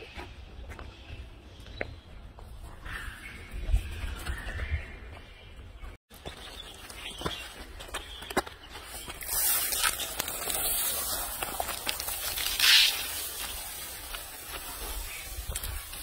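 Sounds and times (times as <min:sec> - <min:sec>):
corn kernels pouring onto road: 0:09.2 - 0:16.0.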